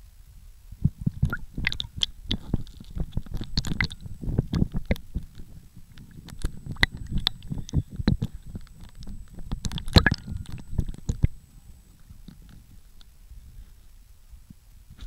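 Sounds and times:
wet pops and gurgles: 1.1s - 11.4s.

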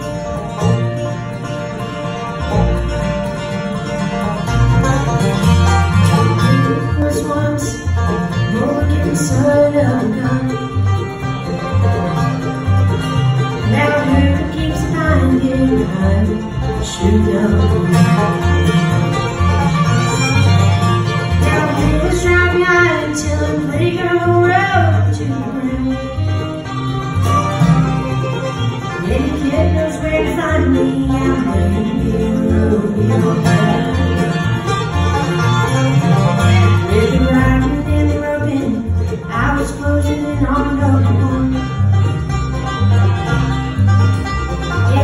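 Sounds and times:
bluegrass band playing: 0.0s - 45.0s
upright bass low notes: 0.0s - 45.0s.

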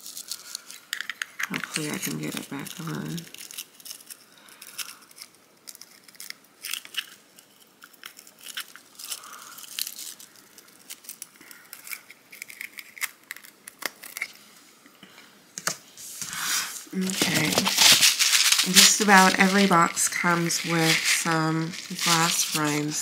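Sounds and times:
plastic case clicks and crinkles: 17.0s - 18.9s.

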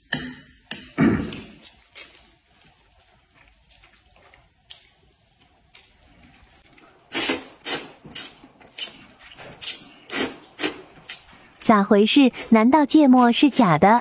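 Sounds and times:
people slurping noodles: 7.1s - 8.4s.

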